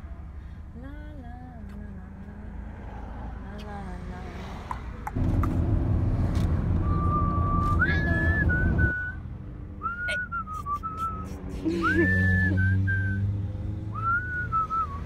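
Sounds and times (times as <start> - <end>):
van engine and road rumble: 0.0 - 15.0
person whistling: 6.8 - 9.2, 9.8 - 13.3, 14.0 - 15.0.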